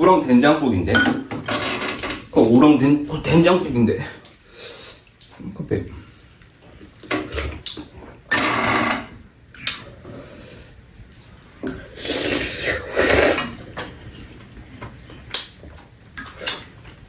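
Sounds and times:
people slurping soup: 11.7s - 14.4s.

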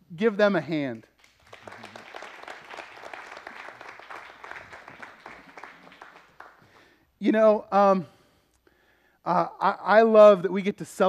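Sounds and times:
congregation applauding: 1.1s - 7.0s.

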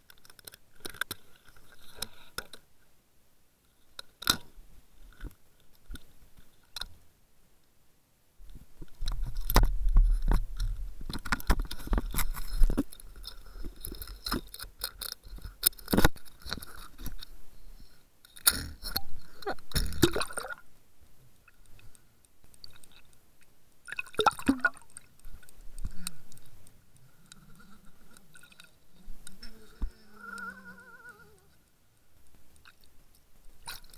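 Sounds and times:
water splashing and gurgling: 19.7s - 20.7s, 23.8s - 25.2s.

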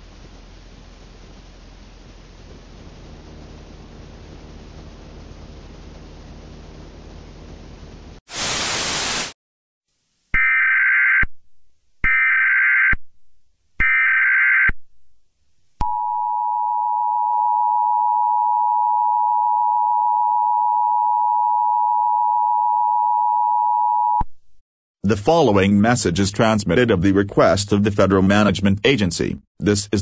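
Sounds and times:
static hiss: 0.0s - 9.4s.

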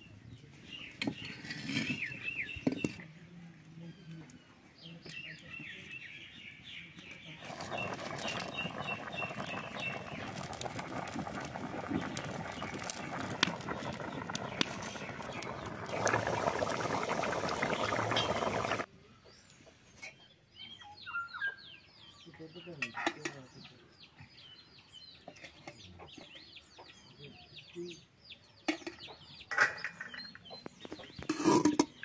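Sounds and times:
birds chirping: 3.9s - 19.7s
curry bubbling and popping: 7.4s - 18.9s.

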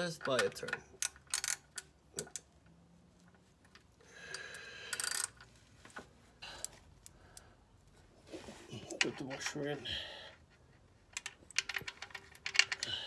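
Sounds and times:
hand ratchet clicking: 0.2s - 2.6s, 4.3s - 5.4s.

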